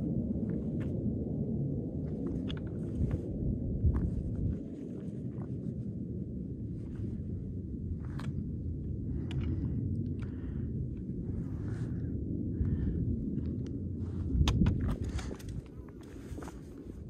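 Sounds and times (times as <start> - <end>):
wind rumbling on microphone: 0.0 - 17.0
faint clicks and scuffs: 13.4 - 17.0.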